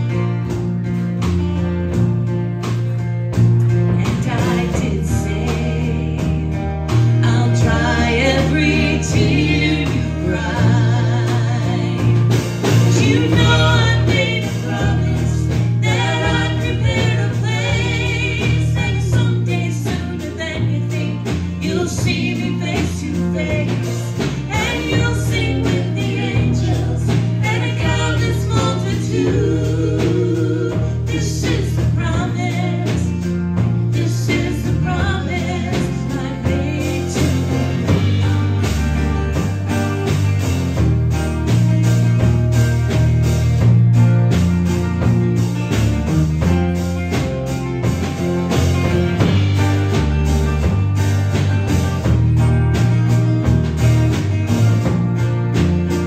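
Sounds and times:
live band playing: 0:00.0 - 0:56.0
person singing with vibrato: 0:04.0 - 0:33.1.

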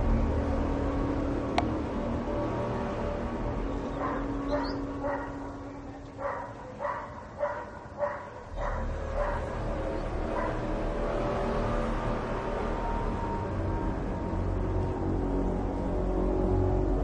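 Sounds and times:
low steady hum: 0:00.0 - 0:17.0
animal barking: 0:03.9 - 0:10.7.

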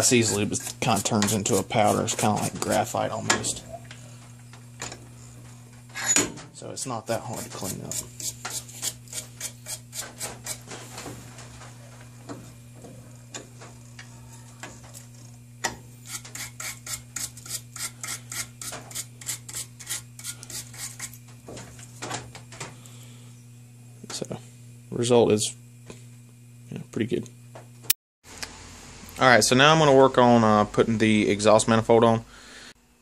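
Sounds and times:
wire brush scrubbing threads: 0:00.0 - 0:03.3, 0:07.0 - 0:10.8, 0:16.0 - 0:21.3.

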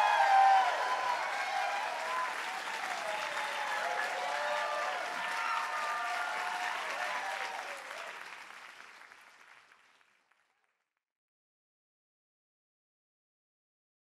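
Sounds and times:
people cheering: 0:00.0 - 0:09.1
audience applauding: 0:00.0 - 0:10.7.

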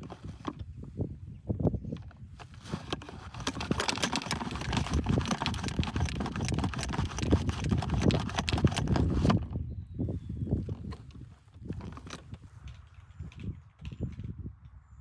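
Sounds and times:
golf ball washer clattering: 0:02.4 - 0:09.4.

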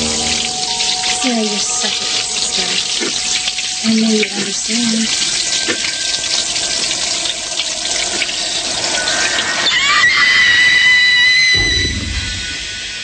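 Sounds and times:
high held tone: 0:00.0 - 0:09.6
shower spray hissing: 0:00.0 - 0:13.0.

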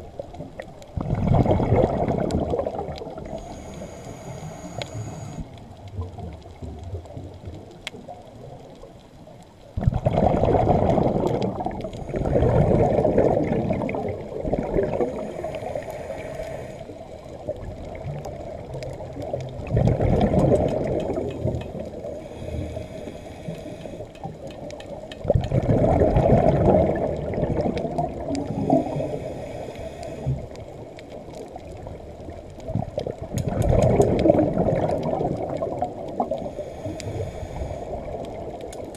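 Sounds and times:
low underwater hiss: 0:00.0 - 0:38.9
regulator bubbles gurgling underwater: 0:00.0 - 0:38.9.

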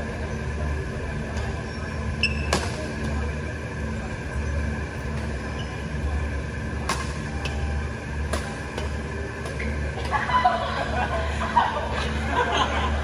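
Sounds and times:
steady low hum: 0:00.0 - 0:13.0
rackets hitting a shuttlecock: 0:02.3 - 0:03.0, 0:06.8 - 0:10.2.

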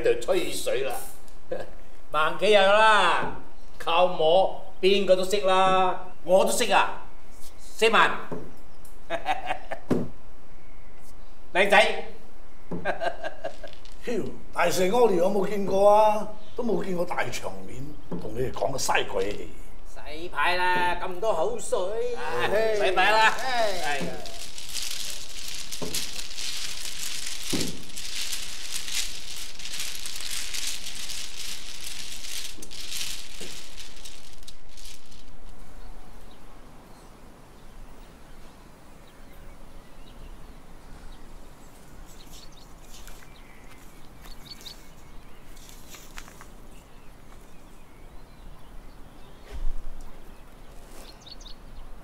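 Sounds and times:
faint bird chirps: 0:10.5 - 0:11.5, 0:35.6 - 0:52.0
mahjong tiles clattering: 0:13.4 - 0:14.0, 0:22.8 - 0:35.6.

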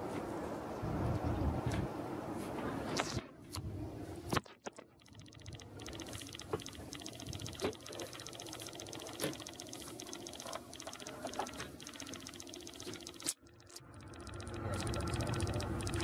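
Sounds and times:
rapid mechanical ticking: 0:04.4 - 0:16.0.

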